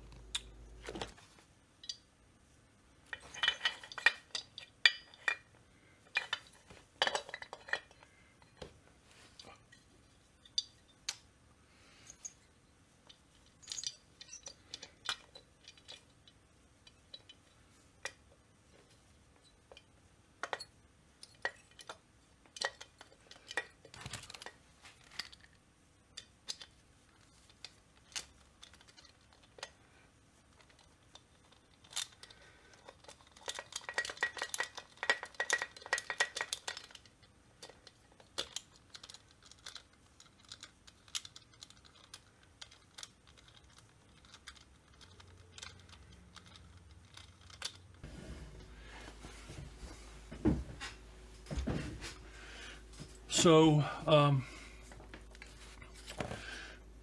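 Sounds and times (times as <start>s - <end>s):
metal parts clicking and clinking: 3.0s - 8.7s, 12.0s - 18.2s, 18.9s - 29.8s, 30.5s - 48.0s.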